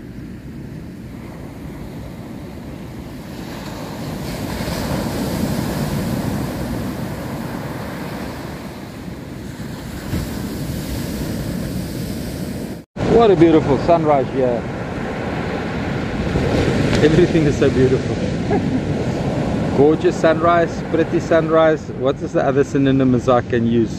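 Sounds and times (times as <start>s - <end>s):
surf breaking on beach: 0.0s - 21.9s
wind rumbling on microphone: 0.0s - 23.9s.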